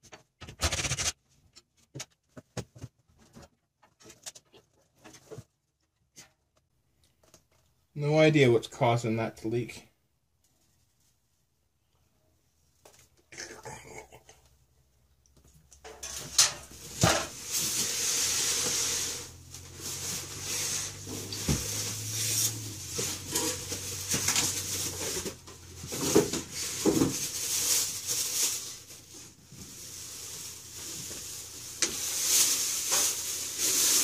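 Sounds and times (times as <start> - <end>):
plastic wrapping crinkling: 15.8 - 34.0.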